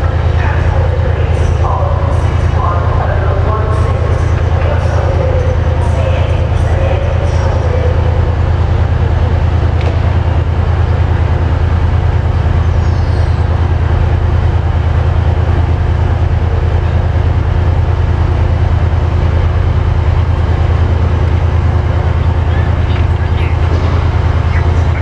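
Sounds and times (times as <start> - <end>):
diesel train engine idling: 0.0 - 25.0.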